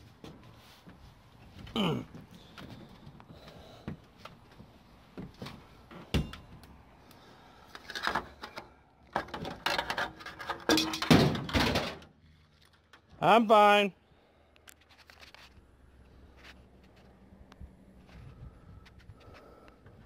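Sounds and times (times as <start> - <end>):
stepladder clattering and scraping: 9.2 - 12.0.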